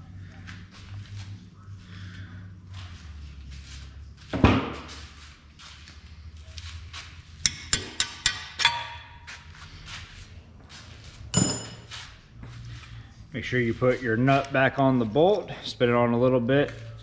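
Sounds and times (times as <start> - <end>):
sharp ringing metal clinks: 11.3 - 11.9.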